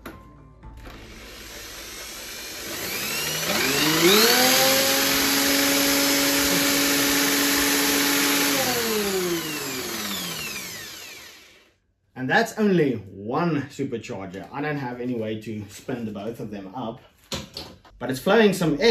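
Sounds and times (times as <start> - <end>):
electric drill spinning supercharger: 0.8 - 11.8.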